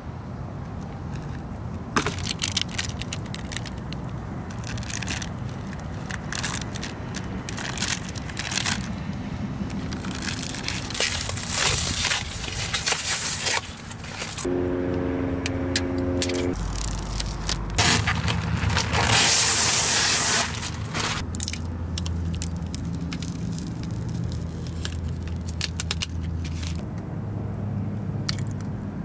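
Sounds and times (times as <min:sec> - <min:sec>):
steady low rumble: 0:01.4 - 0:19.8
packaging crackling and rustling: 0:02.0 - 0:14.5, 0:16.5 - 0:26.8.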